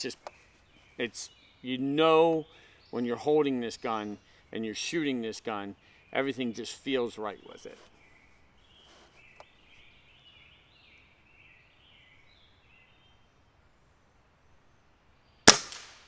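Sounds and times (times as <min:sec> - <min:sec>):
bird chirping: 0:00.0 - 0:15.5
air rifle shot: 0:15.5 - 0:16.0.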